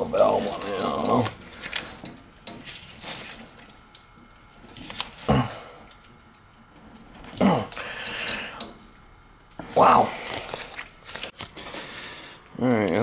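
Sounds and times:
water dripping from valve: 0.0s - 9.8s.

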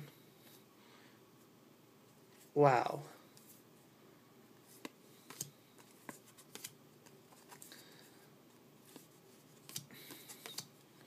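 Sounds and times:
cards flipping and snapping: 4.8s - 7.7s, 8.9s - 10.8s.

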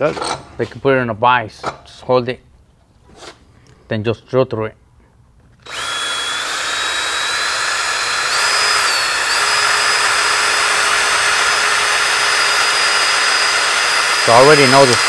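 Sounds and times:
drill cutting plastic: 5.6s - 15.0s.

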